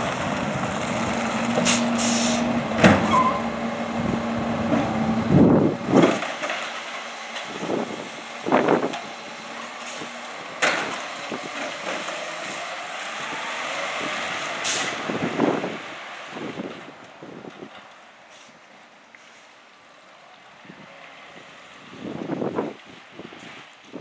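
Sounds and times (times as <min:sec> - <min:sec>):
garbage truck engine hum: 0:00.0 - 0:18.9
air brake hisses: 0:01.7 - 0:02.5, 0:14.6 - 0:15.0.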